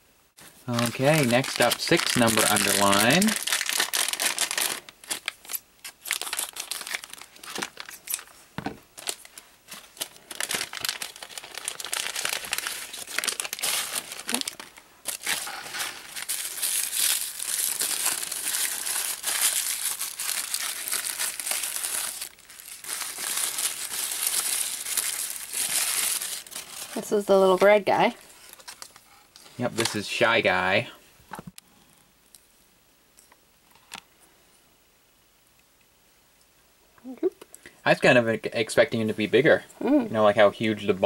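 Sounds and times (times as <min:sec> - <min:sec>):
plastic bag crinkling: 0:00.6 - 0:30.0.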